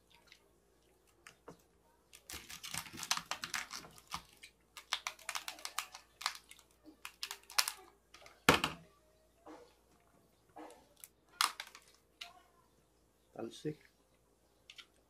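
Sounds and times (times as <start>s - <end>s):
crab shells cracking: 2.1s - 8.6s, 11.0s - 12.3s.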